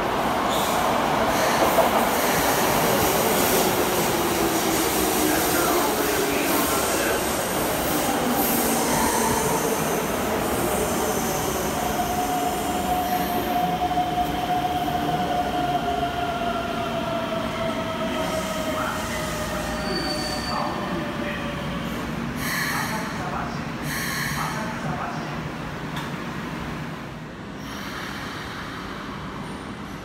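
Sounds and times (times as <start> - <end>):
high brake squeal: 19.5 - 20.9.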